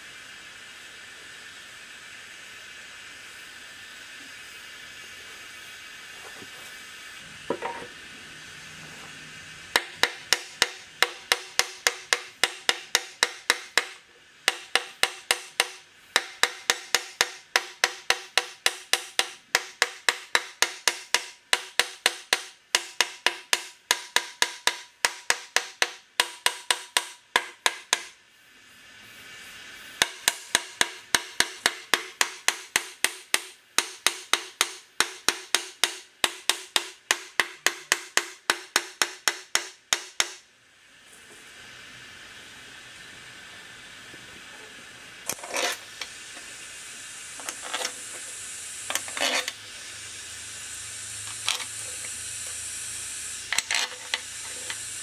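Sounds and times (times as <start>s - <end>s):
hammer striking metal: 9.7s - 28.1s, 30.0s - 40.4s.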